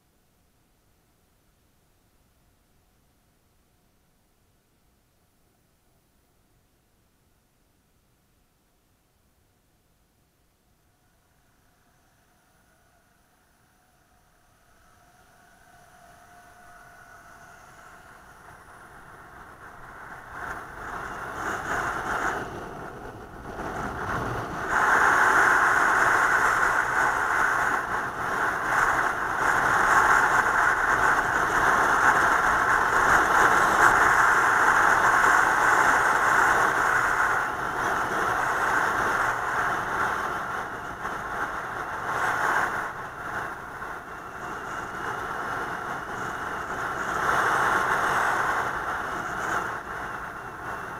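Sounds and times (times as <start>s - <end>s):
road and wind noise: 11.0s - 50.9s.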